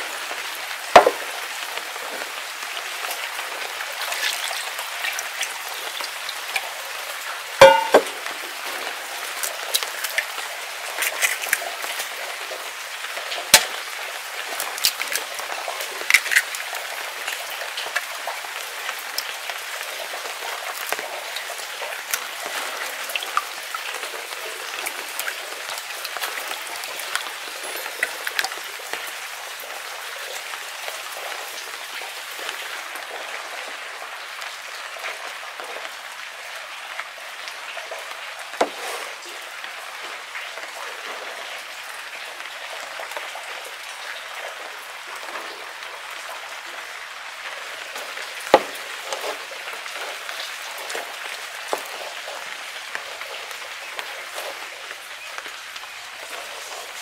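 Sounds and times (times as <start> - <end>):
rain pattering: 0.0 - 57.0
eggs cracked against ceramic bowl: 7.6 - 8.1.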